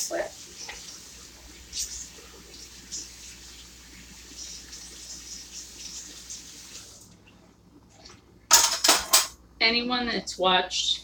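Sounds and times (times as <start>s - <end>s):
tap water running: 0.0s - 7.2s.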